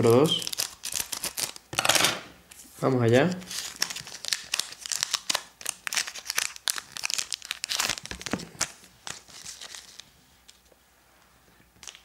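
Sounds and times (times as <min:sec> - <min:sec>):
foil wrapper crinkling and tearing: 0:00.0 - 0:01.8, 0:03.3 - 0:10.6, 0:11.8 - 0:12.0.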